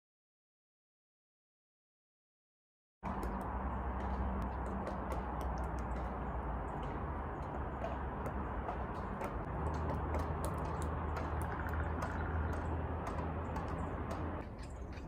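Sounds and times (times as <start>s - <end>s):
steady low hum: 3.0s - 15.0s
woodpecker pecking wood: 3.0s - 15.0s.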